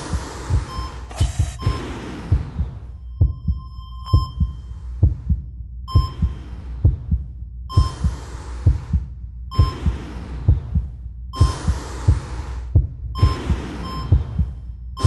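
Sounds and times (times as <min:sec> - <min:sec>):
bursts of hiss: 0:00.0 - 0:02.8, 0:11.4 - 0:13.9
heartbeat double thump: 0:00.0 - 0:15.0.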